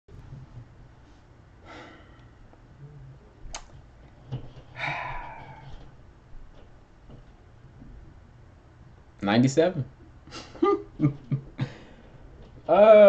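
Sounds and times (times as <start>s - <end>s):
steady low hum: 0.1s - 13.0s
man breathing: 1.6s - 3.1s, 4.7s - 5.9s, 11.6s - 12.4s
sharp click: 3.5s - 3.7s.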